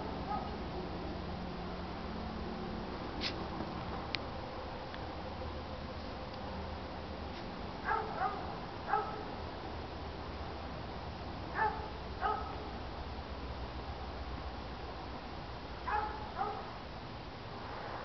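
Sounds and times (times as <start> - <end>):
dog barking: 0.3 - 0.5, 7.8 - 9.3, 11.6 - 12.7, 15.9 - 16.7.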